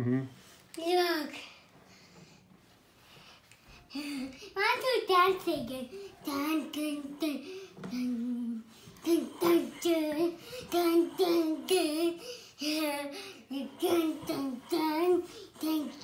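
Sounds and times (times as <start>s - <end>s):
boy singing wordless tune: 8.3s - 16.0s.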